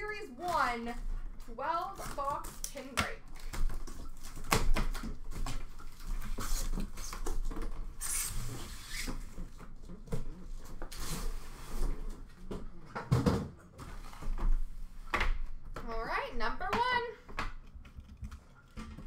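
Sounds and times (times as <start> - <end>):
cardboard scraping and rustling: 1.5 - 13.2.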